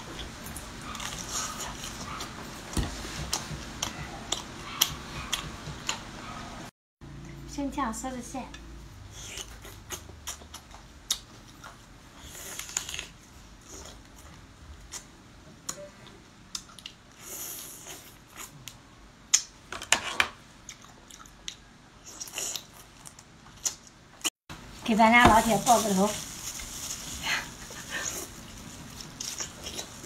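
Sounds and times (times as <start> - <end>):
chewing: 0.2 - 2.4, 3.3 - 6.5, 9.1 - 15.1, 20.6 - 23.9, 27.5 - 30.0.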